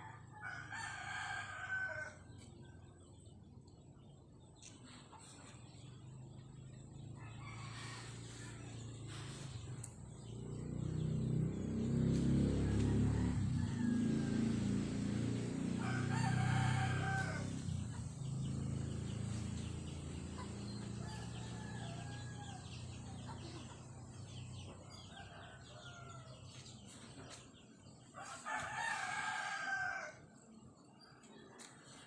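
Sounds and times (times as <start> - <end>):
rooster crowing: 0.0 - 2.2, 7.2 - 9.2, 11.7 - 17.7, 21.0 - 23.1, 24.8 - 26.5, 28.2 - 30.3.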